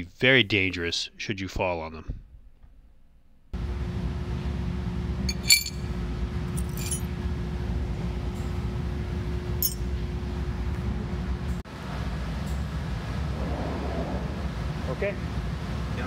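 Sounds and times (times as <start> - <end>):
low background hum: 0.0 - 16.0
glass shards clinking: 5.3 - 5.8, 6.6 - 7.1.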